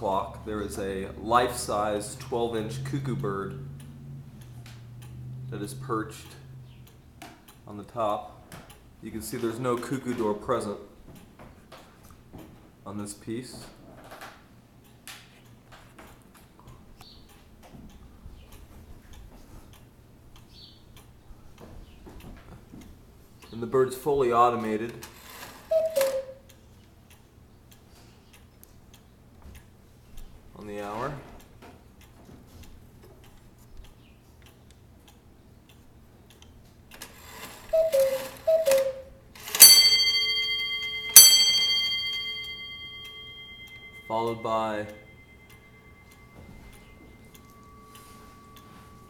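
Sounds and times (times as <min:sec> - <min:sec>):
clock ticking: 0:00.3 - 0:10.0, 0:34.4 - 0:49.0
cuckoo clock call: 0:25.0 - 0:26.6, 0:37.0 - 0:49.0
clock bell ringing: 0:25.2 - 0:26.3, 0:37.1 - 0:49.0.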